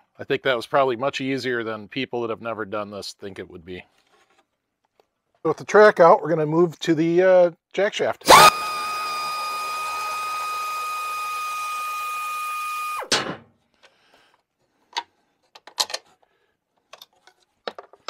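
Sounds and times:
power tool whining: 0:08.3 - 0:13.1.

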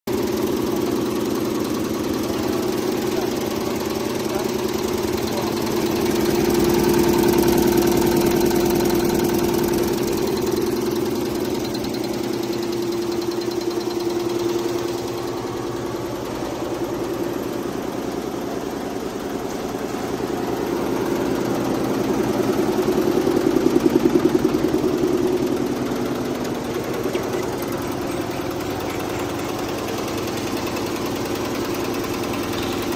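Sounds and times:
embroidery machine clattering: 0:22.1 - 0:32.9.

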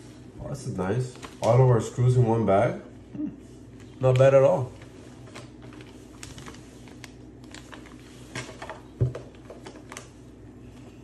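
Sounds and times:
plastic bags rustling: 0:00.9 - 0:02.1, 0:03.7 - 0:11.0.

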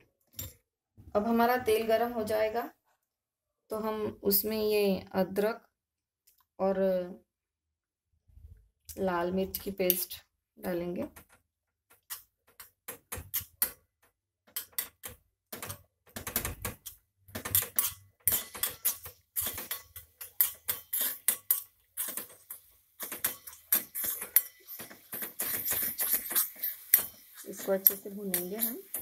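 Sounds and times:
metal spoon scraping a pan: 0:12.0 - 0:13.8, 0:16.8 - 0:29.0.

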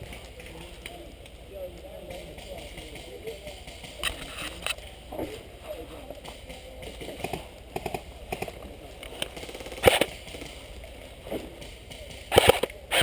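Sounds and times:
rapid airsoft burst: 0:09.4 - 0:10.6, 0:12.1 - 0:13.0
airsoft gun pops: 0:12.2 - 0:13.0.

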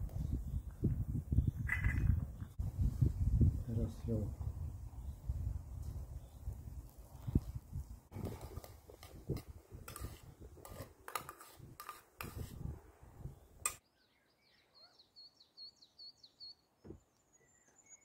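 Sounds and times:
small bird chirping: 0:00.2 - 0:02.6, 0:13.3 - 0:18.0
spoon scraping metal pot: 0:08.2 - 0:12.6.

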